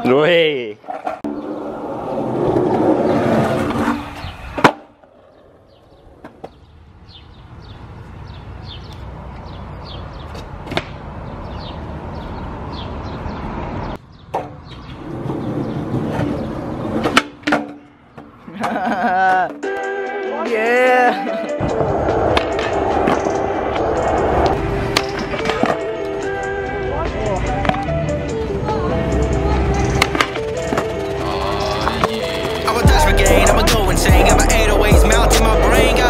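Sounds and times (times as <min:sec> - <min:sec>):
skateboard wheels rolling on concrete: 0:00.7 - 0:19.6, 0:21.4 - 0:36.0
skateboard tail popping and landing: 0:02.5 - 0:06.6.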